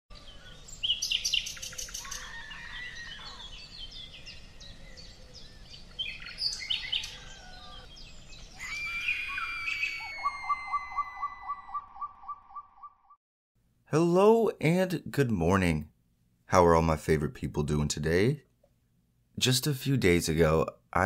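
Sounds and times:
birds chirping: 0.1s - 13.1s
long high whistle-like tone: 8.6s - 12.6s.

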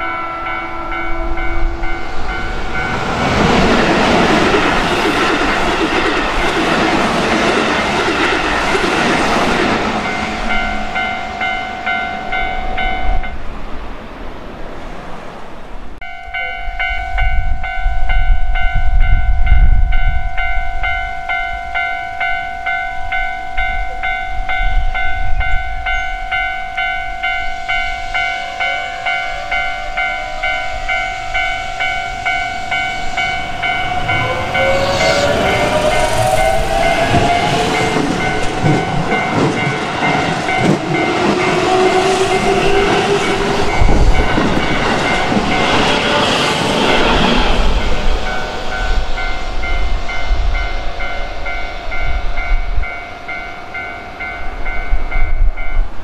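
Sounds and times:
train rumbling on rails: 0.0s - 56.0s
electric train motors whining: 27.3s - 50.7s
pulsing electronic warning tone: 27.6s - 44.6s.

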